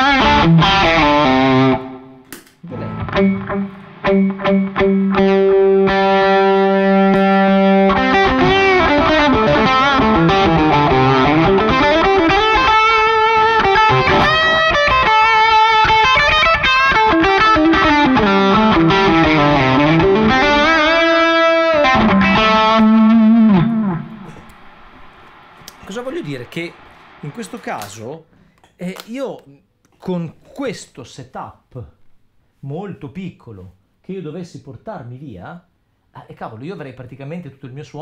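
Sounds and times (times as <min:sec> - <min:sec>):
overdriven electric guitar: 0:00.0 - 0:25.9.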